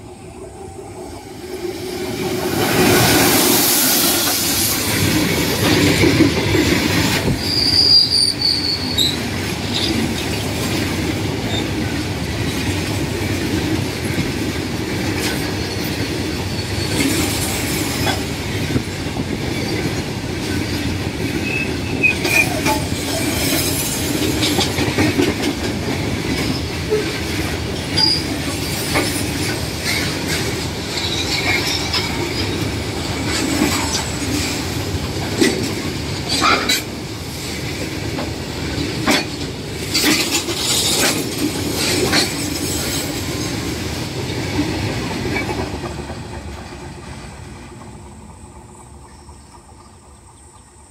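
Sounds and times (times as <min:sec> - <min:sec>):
steel wheels rumbling on rail: 0:00.0 - 0:50.9
high-pitched wheel squeals: 0:07.3 - 0:09.2, 0:28.0 - 0:28.9.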